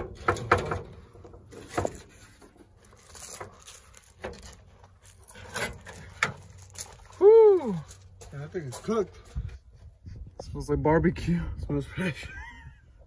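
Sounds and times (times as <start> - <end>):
light knocks and scrapes: 0.0 - 7.0.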